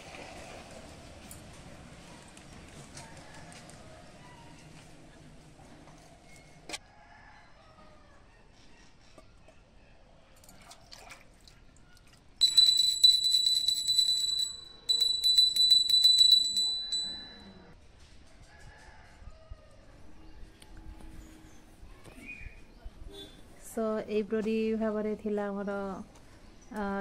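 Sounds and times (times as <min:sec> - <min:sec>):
brass hand bell ringing: 0:12.4 - 0:17.6.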